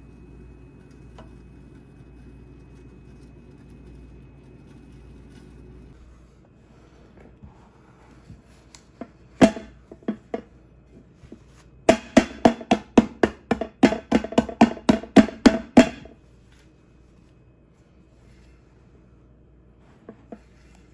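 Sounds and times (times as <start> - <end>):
hand knocking on metal pot: 11.9 - 16.1.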